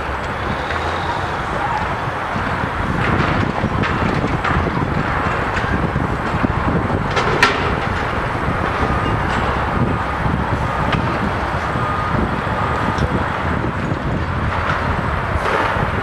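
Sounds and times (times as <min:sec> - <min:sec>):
machinery rumble: 0:00.0 - 0:16.0
wind: 0:00.0 - 0:16.0
concrete cracks and clanks: 0:03.0 - 0:09.7.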